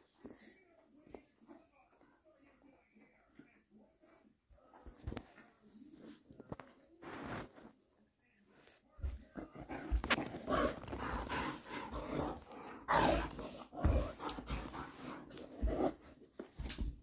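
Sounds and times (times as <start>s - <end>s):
dog breathing hard: 9.6s - 16.0s
dog rolling on carpet: 9.6s - 16.8s.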